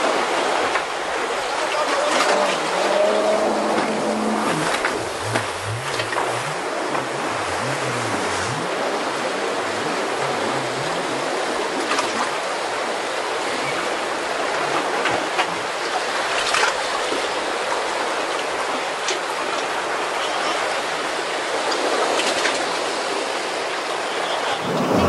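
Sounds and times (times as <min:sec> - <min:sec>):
churning sea water and waves: 0:00.0 - 0:25.0
water splashes: 0:00.0 - 0:25.0.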